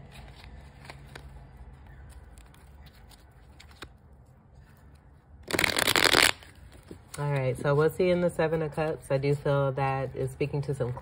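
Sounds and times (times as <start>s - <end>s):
cards shuffling clicks and rubs: 0.0s - 8.2s
cards riffling flutter: 4.8s - 6.9s.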